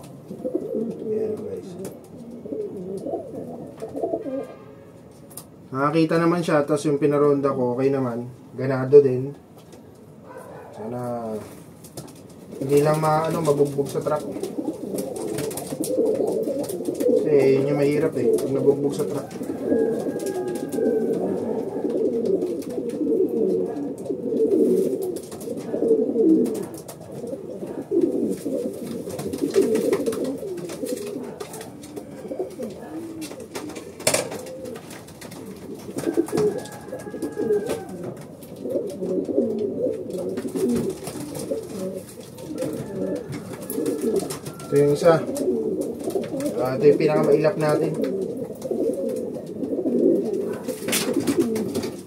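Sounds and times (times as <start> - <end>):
pigeons cooing: 0.0 - 7.9, 9.2 - 52.0.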